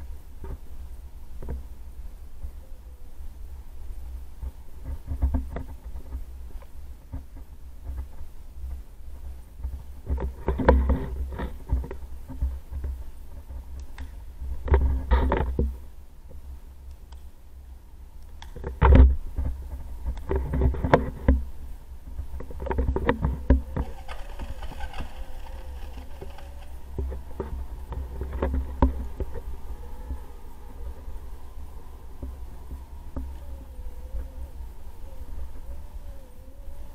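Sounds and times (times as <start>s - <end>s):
inline skates rolling on concrete: 22.6s - 30.2s.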